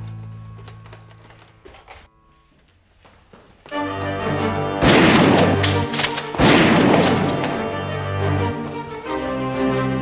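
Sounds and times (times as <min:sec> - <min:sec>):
background music: 0:03.7 - 0:10.0.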